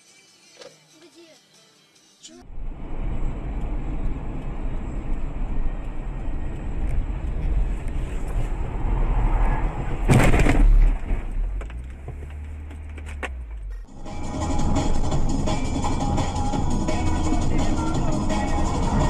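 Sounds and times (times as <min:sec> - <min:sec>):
road and engine rumble: 0:02.4 - 0:19.0
car crash: 0:08.2 - 0:13.8.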